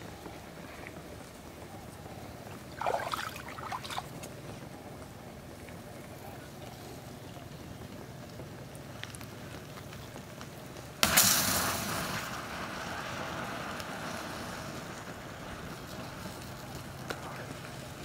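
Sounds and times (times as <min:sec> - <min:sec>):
steady fire noise: 0:00.0 - 0:18.0
rush of flame: 0:08.7 - 0:18.0
lighter bursting with a bang: 0:11.0 - 0:13.1.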